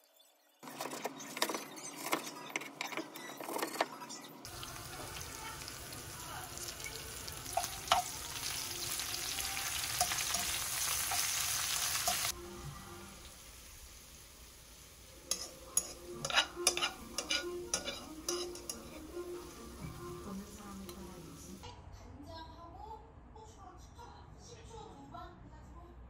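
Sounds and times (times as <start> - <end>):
food sizzling in frying pan: 4.5 - 21.6.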